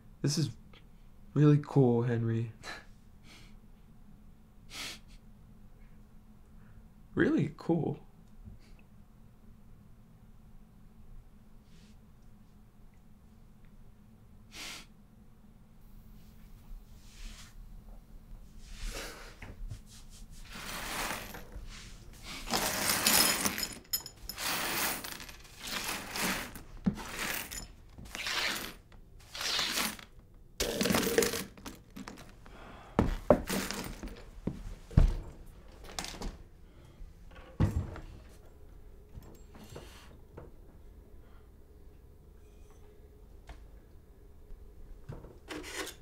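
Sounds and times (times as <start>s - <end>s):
broom sweeping a floor: 16.0s - 17.7s, 18.4s - 23.6s, 24.2s - 30.1s.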